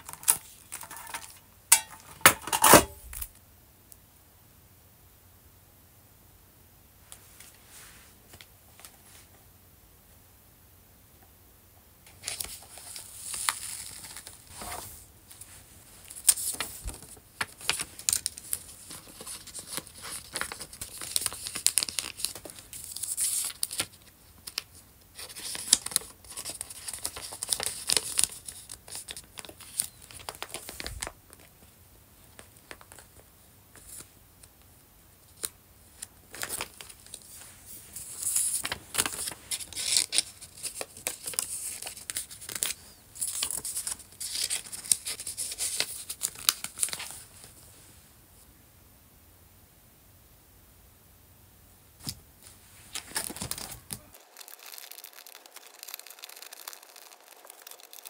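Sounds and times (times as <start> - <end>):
plastic sleeves crinkling: 12.1 - 31.6, 35.4 - 47.6, 52.4 - 58.0.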